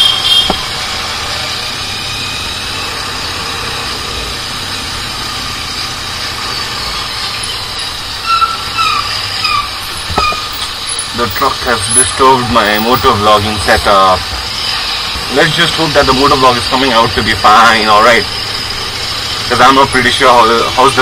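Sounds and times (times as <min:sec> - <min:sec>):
short high squeals: 0:00.0 - 0:13.5
motorcycle engine running: 0:00.0 - 0:21.0
road and wind noise: 0:00.0 - 0:21.0.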